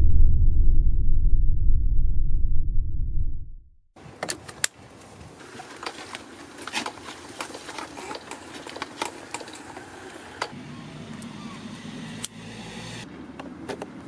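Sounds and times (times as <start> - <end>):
garden hose unwinding from reel: 5.4 - 13.0.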